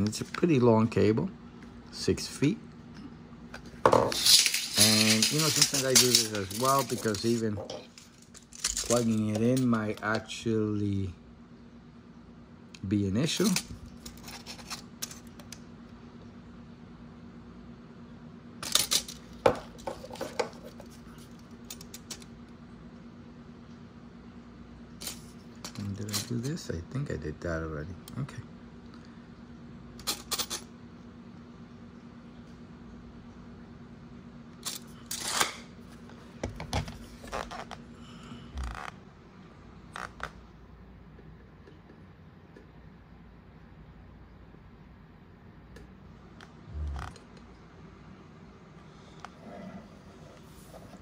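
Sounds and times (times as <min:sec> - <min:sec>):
steady low hum: 0:00.0 - 0:51.0
scraping rustle on table: 0:03.9 - 0:09.3.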